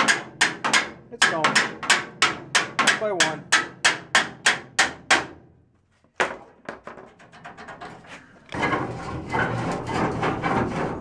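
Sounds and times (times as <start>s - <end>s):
metal tube scraping rattle: 6.9s - 11.0s.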